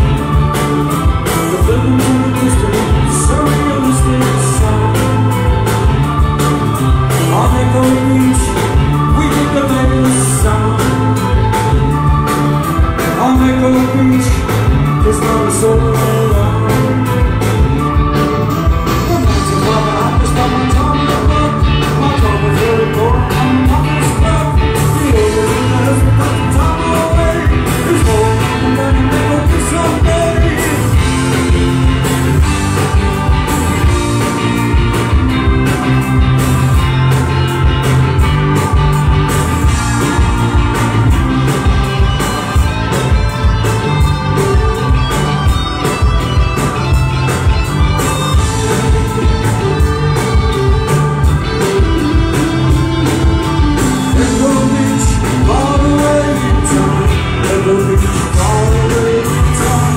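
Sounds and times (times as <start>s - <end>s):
man singing: 0.0s - 33.0s, 52.1s - 59.9s
bass guitar: 0.0s - 59.9s
drums: 0.0s - 59.9s
electric guitar: 0.0s - 59.9s.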